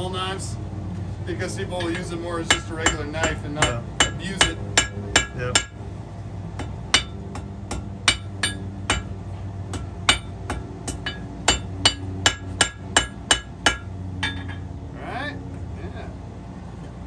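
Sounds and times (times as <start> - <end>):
hammer ringing on anvil: 1.8 - 5.8, 6.9 - 9.1, 9.7 - 14.7.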